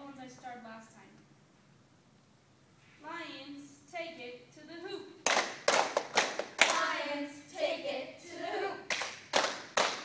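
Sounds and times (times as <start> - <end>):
group clapping in unison: 5.2 - 7.3, 8.8 - 10.0
group chanting a cheer: 6.6 - 9.0.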